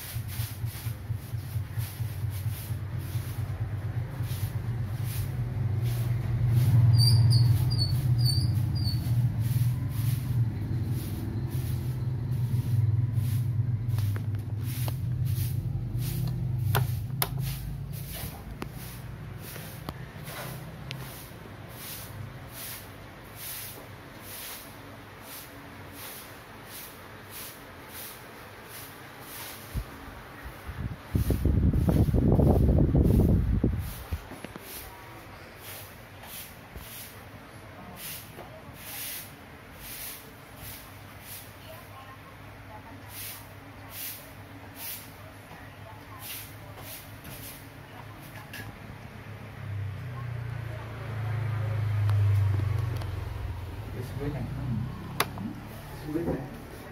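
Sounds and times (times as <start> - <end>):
ceiling fan motor hum: 0.0 - 37.8
hiss of moving air: 0.0 - 41.9, 43.0 - 45.3.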